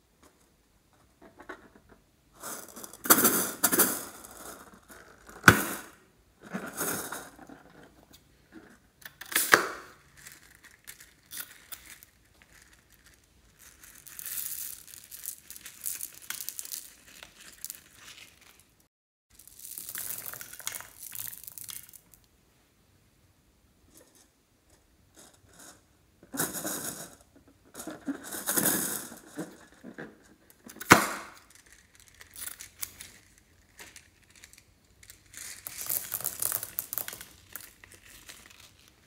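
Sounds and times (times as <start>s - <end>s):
beads pouring into a hand: 10.0s - 18.7s, 19.3s - 22.3s, 30.8s - 39.0s
rubbery rustling: 27.7s - 39.0s.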